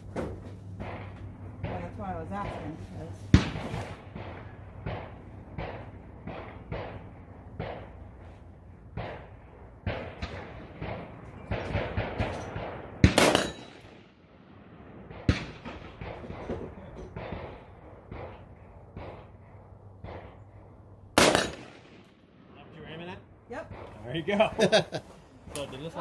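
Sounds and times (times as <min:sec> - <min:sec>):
rifle shots: 0:00.8 - 0:08.2, 0:08.9 - 0:19.4, 0:21.1 - 0:22.5.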